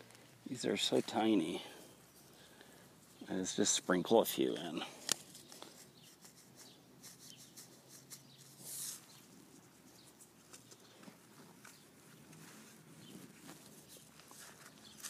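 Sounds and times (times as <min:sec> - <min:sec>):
soft hiss of seeds sprinkled: 0:04.4 - 0:10.9.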